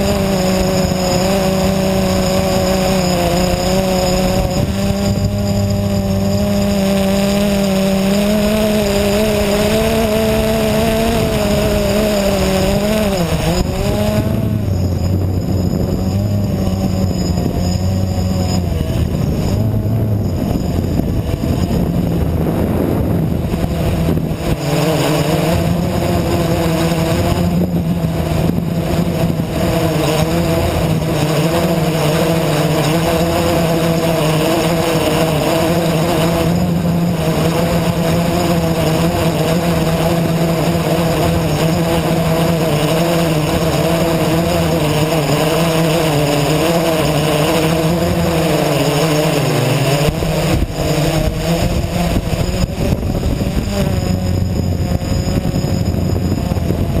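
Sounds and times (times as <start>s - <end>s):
quadcopter motors buzzing: 0.0s - 57.0s.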